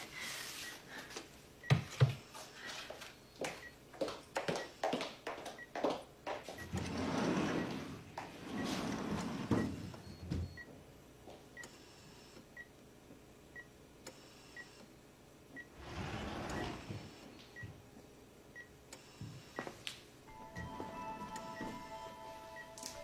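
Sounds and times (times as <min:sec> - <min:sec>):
patient monitor beeping: 0:03.1 - 0:03.8, 0:08.5 - 0:10.7, 0:19.6 - 0:23.0.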